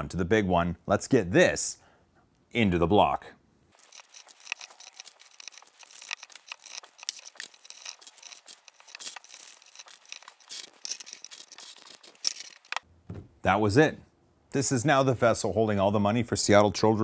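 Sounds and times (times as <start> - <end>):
paper banknotes rustling: 3.7 - 12.8.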